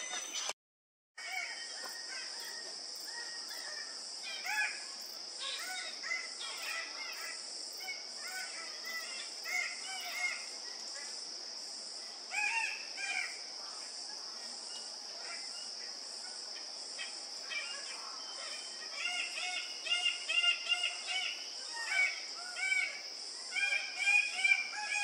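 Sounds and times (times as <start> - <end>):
high insect drone: 1.2 - 25.0
bird display calls: 16.4 - 25.0.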